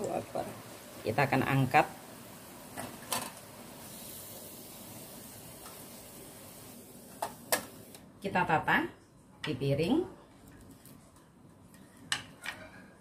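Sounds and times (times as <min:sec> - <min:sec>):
food sizzling in deep oil: 0:00.0 - 0:08.0.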